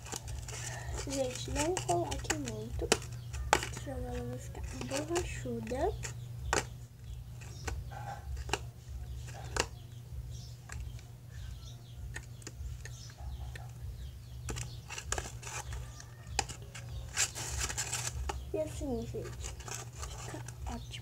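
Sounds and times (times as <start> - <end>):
metal spoon stirring slime: 0.0 - 6.7, 14.3 - 21.0
steady low hum: 0.0 - 21.0
spoon knocking plastic container: 1.4 - 6.8.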